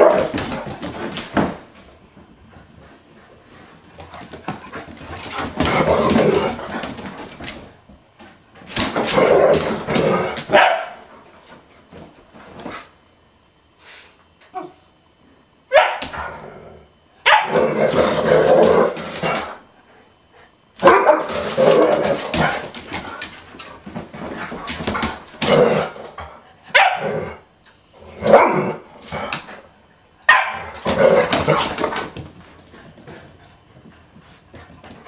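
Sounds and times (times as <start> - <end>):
dogs barking in play: 0.0 - 1.0, 8.9 - 11.2, 15.7 - 16.5, 17.2 - 19.6, 20.8 - 23.2, 24.5 - 29.6, 30.2 - 32.2.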